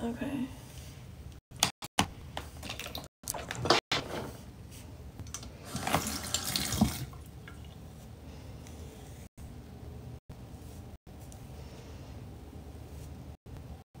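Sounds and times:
water running from tap: 0:05.6 - 0:07.8.

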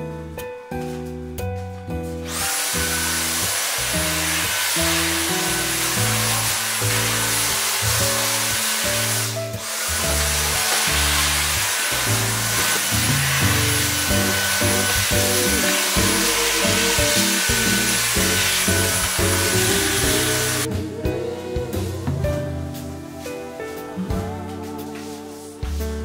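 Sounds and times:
background music: 0:00.0 - 0:26.0
handheld vacuum cleaner whining: 0:02.2 - 0:20.7.

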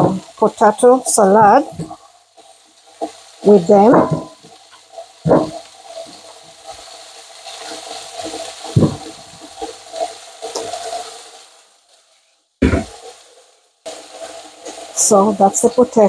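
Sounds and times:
meat frying in a pan: 0:00.0 - 0:16.0
potatoes knocking into metal pot: 0:03.8 - 0:04.4.

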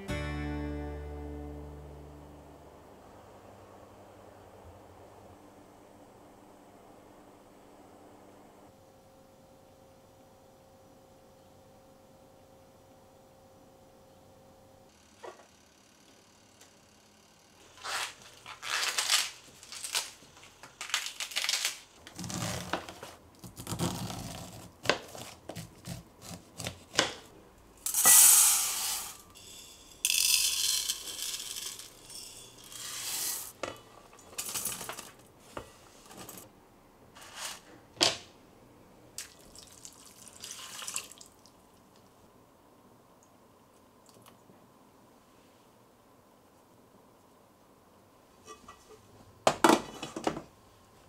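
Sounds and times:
water pouring over rice: 0:39.2 - 0:41.6.

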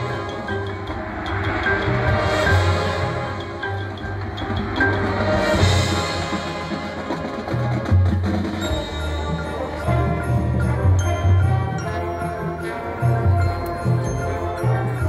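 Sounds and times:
bell-like mallet percussion: 0:00.0 - 0:06.8, 0:08.2 - 0:15.0
marching band playing: 0:00.0 - 0:15.0.

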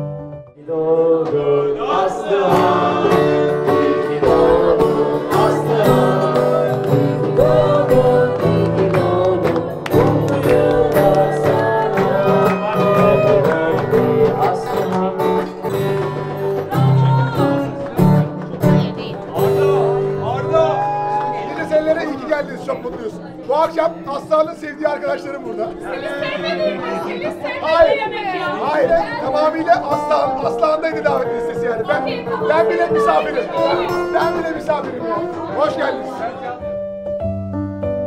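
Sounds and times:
guitar: 0:00.0 - 0:38.0
person singing: 0:00.6 - 0:17.7.

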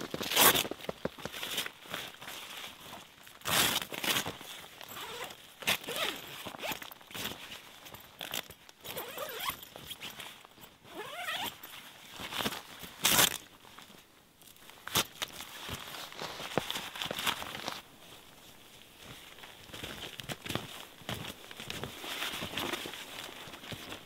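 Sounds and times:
tent fabric rustling: 0:00.0 - 0:14.0, 0:14.6 - 0:24.0
zipper pulls: 0:00.1 - 0:00.8, 0:03.4 - 0:07.5, 0:08.1 - 0:10.2, 0:10.8 - 0:11.7, 0:12.3 - 0:13.4.

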